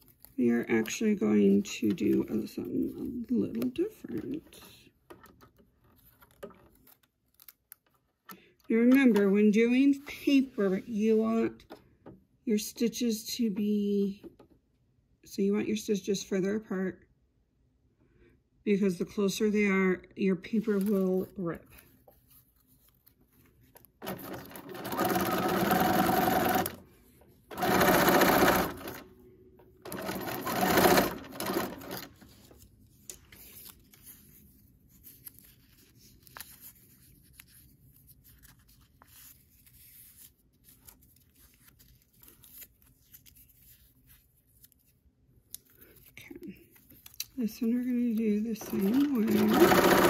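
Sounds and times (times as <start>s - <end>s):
sewing machine stitching: 24.0s - 26.8s, 27.5s - 29.1s, 29.8s - 32.2s, 48.6s - 50.0s.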